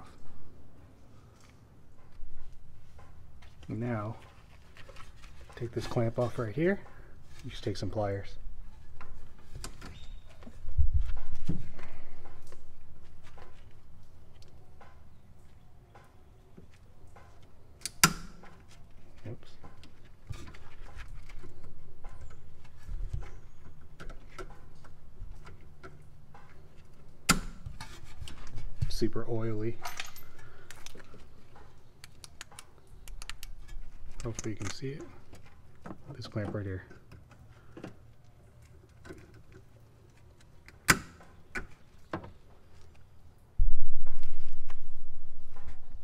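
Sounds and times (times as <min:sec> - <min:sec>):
sharp metallic click: 0:17.8 - 0:18.4.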